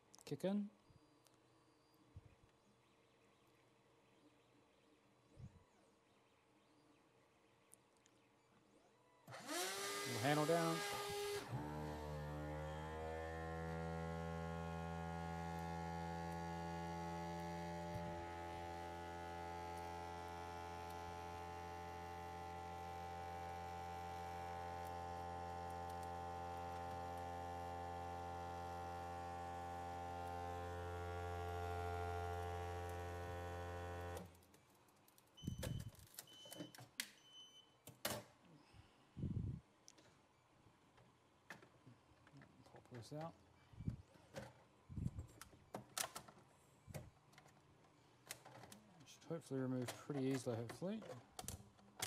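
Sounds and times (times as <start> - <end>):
vacuum pump running: 9.3 - 34.3
short beeps: 35.4 - 37.8.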